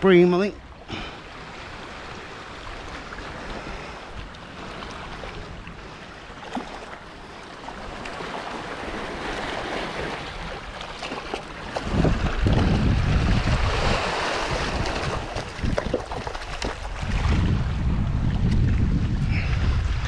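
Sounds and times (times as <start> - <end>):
sea waves washing on shore: 0.0 - 20.0
wind on microphone: 11.6 - 20.0.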